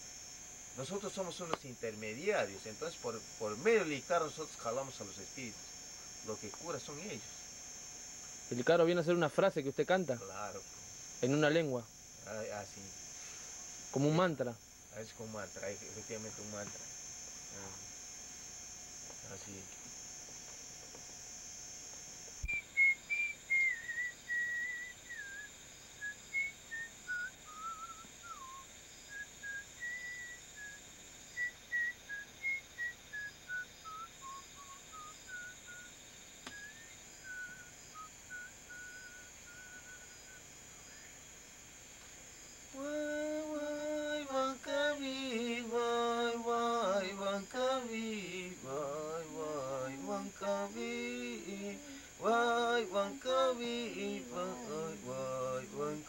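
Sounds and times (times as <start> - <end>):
whistled chant melody: 22.4 - 28.6
man chanting: 42.8 - 56.0.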